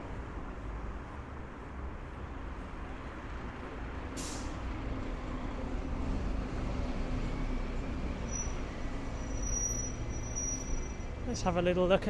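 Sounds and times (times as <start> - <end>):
short hiss: 4.2 - 4.6.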